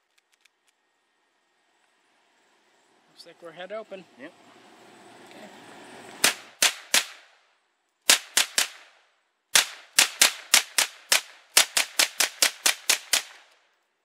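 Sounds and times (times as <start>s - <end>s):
pistol shots: 6.2s - 7.3s, 8.1s - 13.6s.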